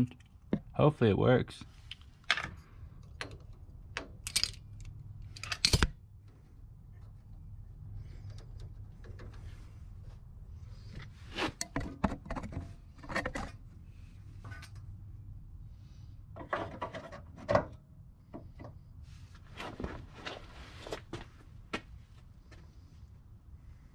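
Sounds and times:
steady low hum: 0:00.0 - 0:23.9
hands handling parts and tools: 0:01.8 - 0:13.6.

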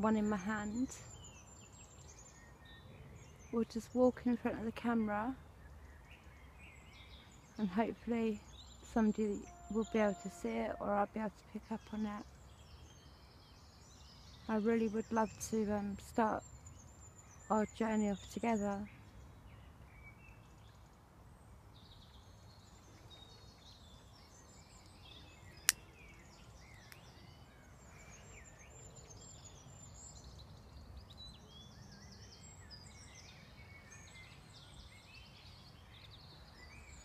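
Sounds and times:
birds chirping: 0:00.0 - 0:21.0.

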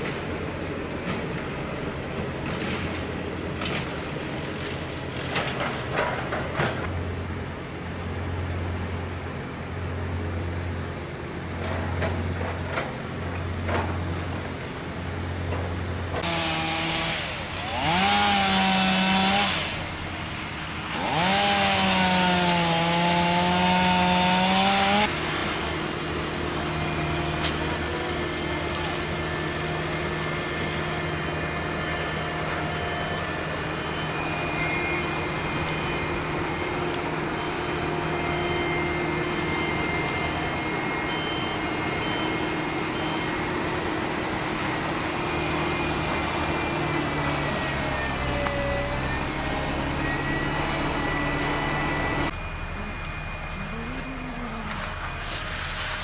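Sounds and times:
steady engine hum: 0:00.0 - 0:56.0
chainsaw revving: 0:16.2 - 0:25.2
low pulsing hum: 0:50.6 - 0:56.0.

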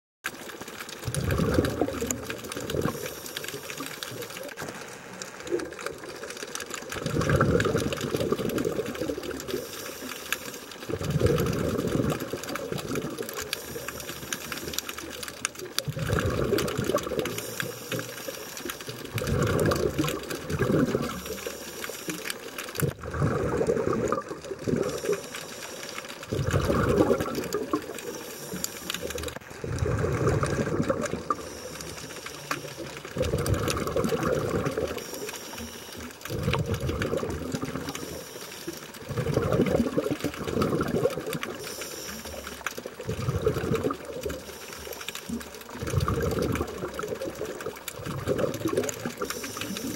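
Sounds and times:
exhaled bubbles underwater: 0:00.3 - 0:49.9
hissing regulator inhale: 0:02.8 - 0:04.2, 0:09.4 - 0:10.8, 0:13.4 - 0:15.0, 0:17.2 - 0:19.5, 0:20.8 - 0:22.9, 0:24.7 - 0:29.4, 0:31.2 - 0:33.2, 0:34.4 - 0:36.7, 0:37.6 - 0:39.0, 0:41.5 - 0:42.7, 0:44.3 - 0:45.4, 0:49.2 - 0:49.9.

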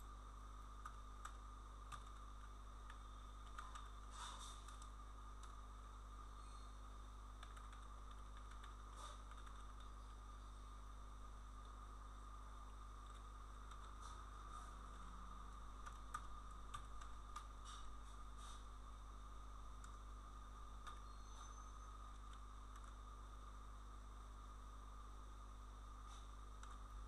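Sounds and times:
faint whine: 0:00.0 - 0:27.0
low electrical hum: 0:00.0 - 0:27.0
keyboard and mouse clicks: 0:00.8 - 0:05.6, 0:07.4 - 0:10.1, 0:13.0 - 0:14.8, 0:15.8 - 0:18.6, 0:19.8 - 0:20.0, 0:20.8 - 0:21.2, 0:22.1 - 0:23.0, 0:26.1 - 0:26.9.

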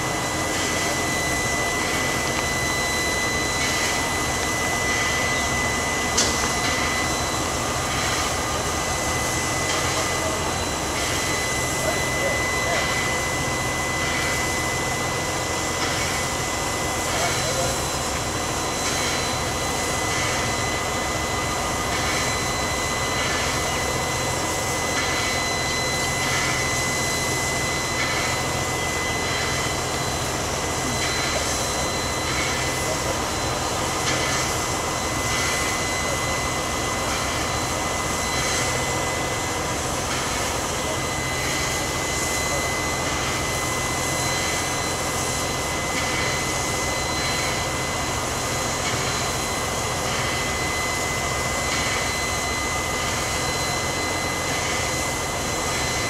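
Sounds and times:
steam hissing roar: 0:00.0 - 0:56.0
high whistling tone: 0:00.9 - 0:10.5.

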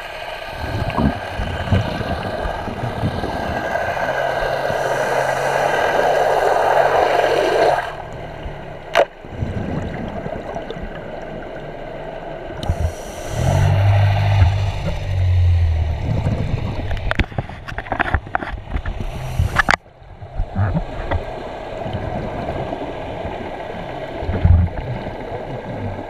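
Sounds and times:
exhaled bubbles gurgling underwater: 0:00.0 - 0:26.0
regulator hissing inhale: 0:02.0 - 0:07.8, 0:12.6 - 0:15.0, 0:19.0 - 0:19.8.

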